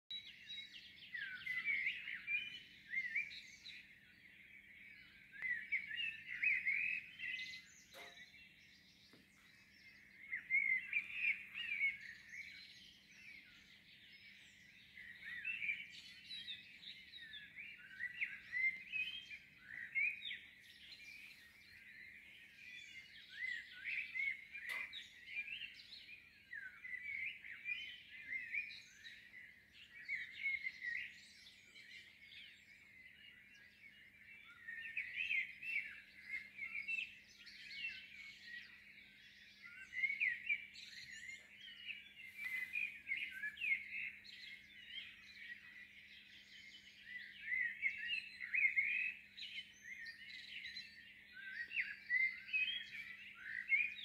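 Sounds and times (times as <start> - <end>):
songbirds chirping: 0.1 - 54.0.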